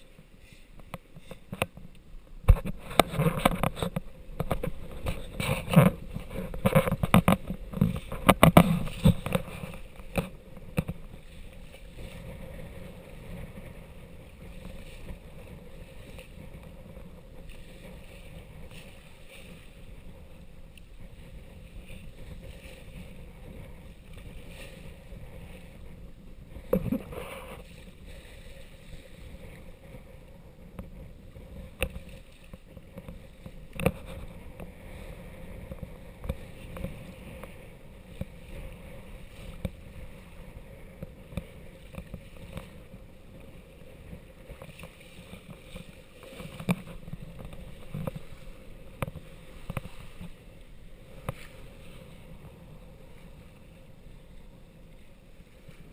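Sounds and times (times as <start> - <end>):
water rushing along hull: 0.0 - 55.9.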